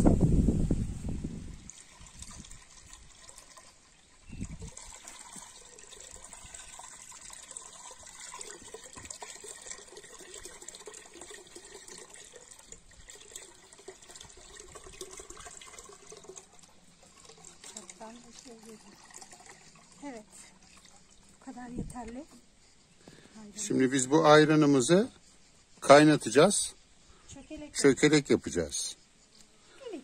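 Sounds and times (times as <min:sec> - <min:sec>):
liquid trickling into steel pot: 0:01.4 - 0:22.0.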